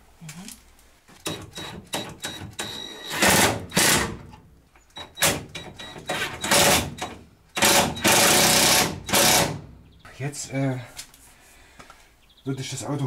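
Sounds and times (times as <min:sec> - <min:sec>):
impact wrench hammering: 0:01.2 - 0:04.2, 0:05.2 - 0:09.6.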